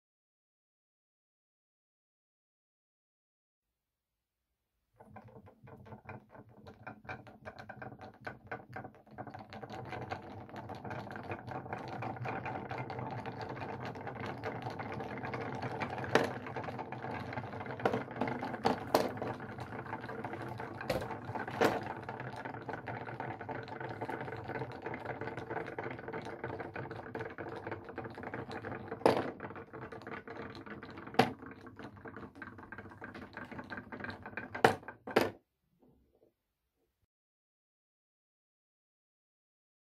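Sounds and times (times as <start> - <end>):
wooden toys clattering: 5.0 - 35.4.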